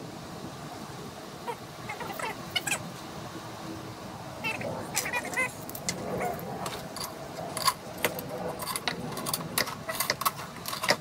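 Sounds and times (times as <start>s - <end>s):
metal hardware clicking and clinking: 6.7s - 11.0s.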